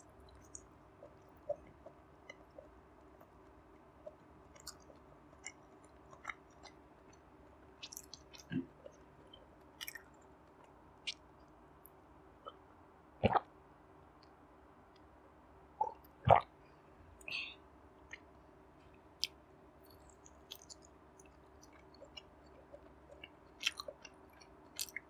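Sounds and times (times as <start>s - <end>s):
wet chewing mouth clicks: 4.0s - 6.8s, 20.1s - 20.9s, 21.6s - 25.0s.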